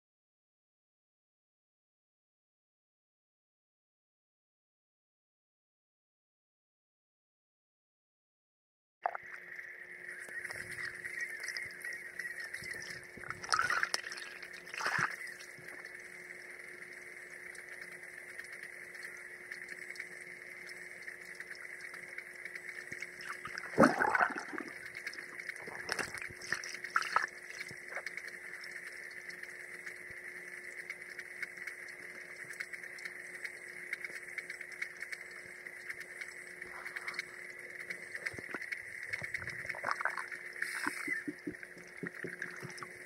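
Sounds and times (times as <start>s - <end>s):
low hum: 9.1s - 43.0s
steady whine: 9.1s - 43.0s
underwater swishing splashes: 10.6s - 15.8s, 22.8s - 29.0s, 36.6s - 43.0s.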